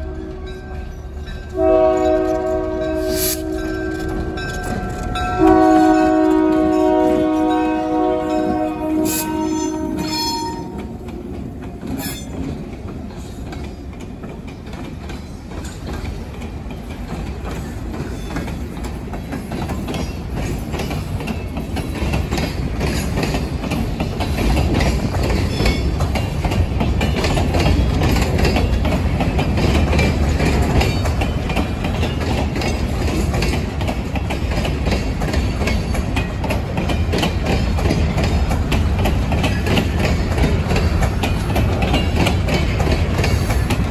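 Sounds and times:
diesel locomotive horn: 0:00.0 - 0:00.9, 0:01.5 - 0:04.5, 0:05.1 - 0:11.9
freight train rolling on rails: 0:00.0 - 0:43.9.

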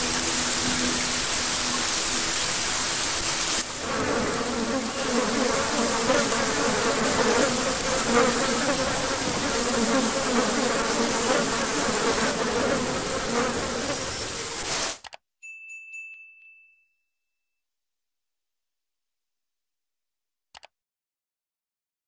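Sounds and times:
rain hiss: 0:00.0 - 0:15.0
low buzzing hum: 0:03.2 - 0:14.7
bright ding: 0:15.4 - 0:17.5.

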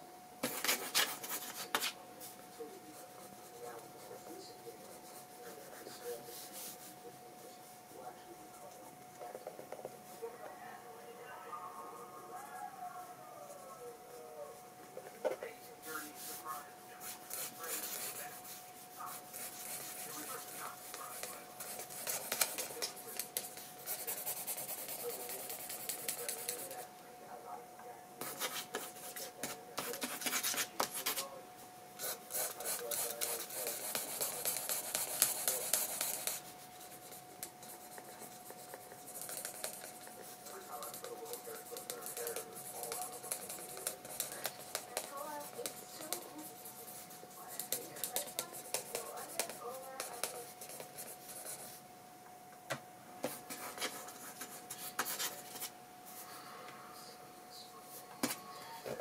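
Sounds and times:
pen scratching on paper: 0:00.4 - 0:02.0, 0:15.9 - 0:26.8, 0:28.2 - 0:31.3, 0:32.0 - 0:51.8, 0:53.2 - 0:55.7.

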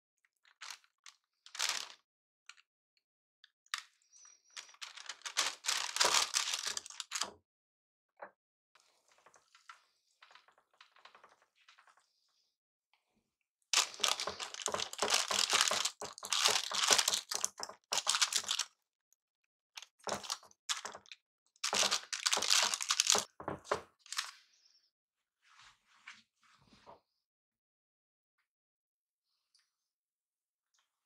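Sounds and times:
paper crinkling and rustling: 0:00.4 - 0:02.6, 0:04.5 - 0:07.3, 0:13.8 - 0:18.7, 0:19.8 - 0:24.4.

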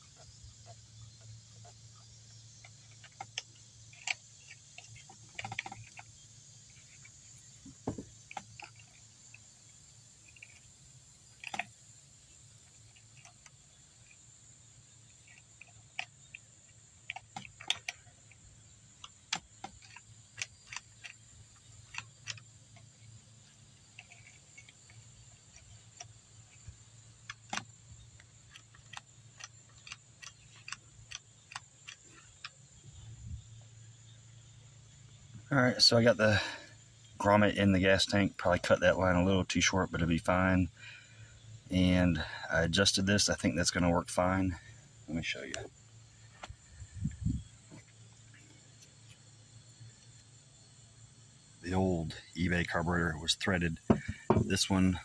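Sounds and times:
insects droning: 0:00.0 - 0:55.0
hands clicking plastic parts: 0:19.0 - 0:21.2.

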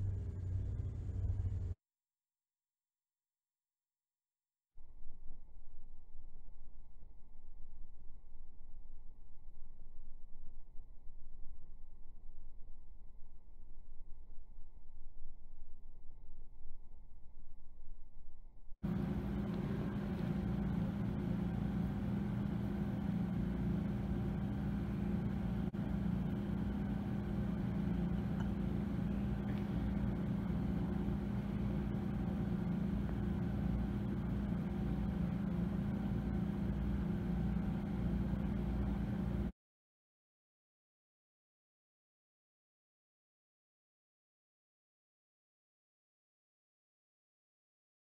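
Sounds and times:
aquarium equipment hum: 0:00.0 - 0:01.8, 0:18.8 - 0:39.5.

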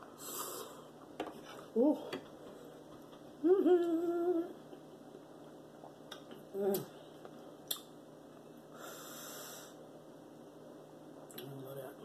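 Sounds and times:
person saying ooh: 0:03.4 - 0:04.5
person humming mm: 0:03.4 - 0:04.6, 0:06.5 - 0:06.9
mouth clicks: 0:07.6 - 0:07.9.

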